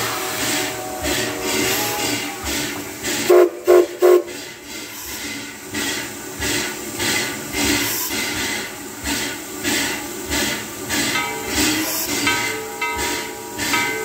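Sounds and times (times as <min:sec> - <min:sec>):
steam whistle toots: 0:00.0 - 0:04.4
rhythmic steam hiss: 0:00.0 - 0:14.0.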